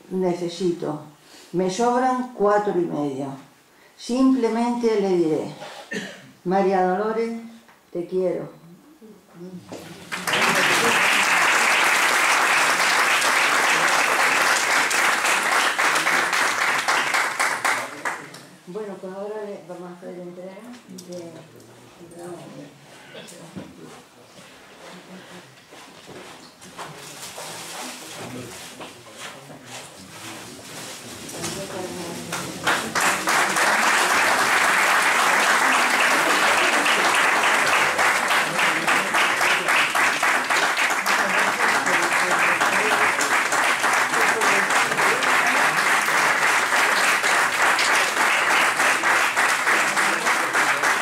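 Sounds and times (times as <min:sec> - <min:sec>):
audience applauding: 0:10.0 - 0:18.3, 0:32.3 - 0:51.0.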